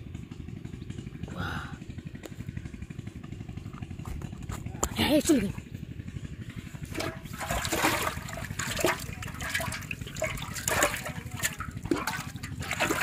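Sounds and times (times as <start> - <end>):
water splashing in metal pot: 6.8 - 13.0.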